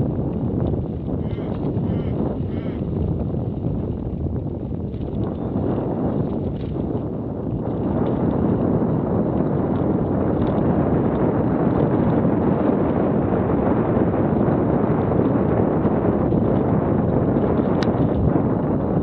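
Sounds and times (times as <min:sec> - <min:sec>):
bike rattling: 0:00.0 - 0:19.0
wind rushing on microphone: 0:00.0 - 0:19.0.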